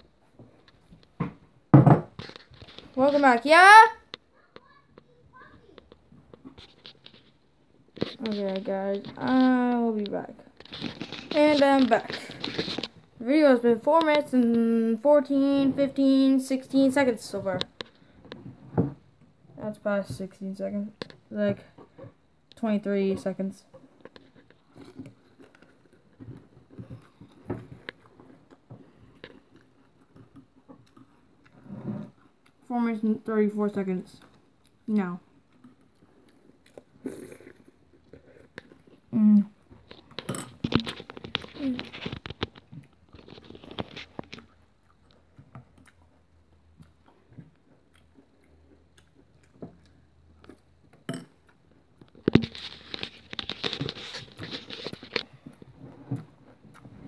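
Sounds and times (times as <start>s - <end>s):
person chewing crunchy cereal: 24.0s - 31.6s, 35.4s - 39.1s, 39.8s - 57.0s.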